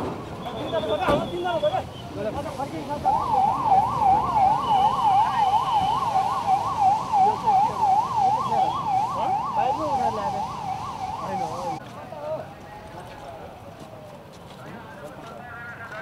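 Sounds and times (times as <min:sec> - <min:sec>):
police siren fast warble: 0:02.8 - 0:11.8.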